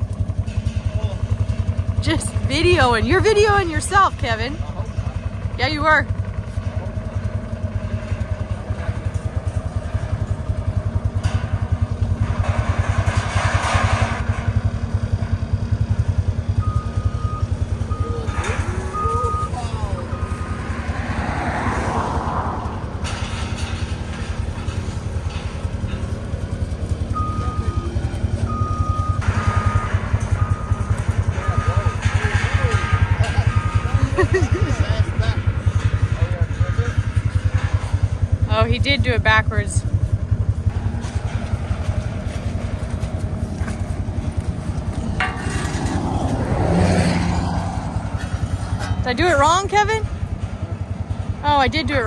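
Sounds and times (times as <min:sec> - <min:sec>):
diesel engine rumbling: 0:00.0 - 0:52.0
reversing beeper: 0:14.5 - 0:23.4, 0:26.8 - 0:37.7.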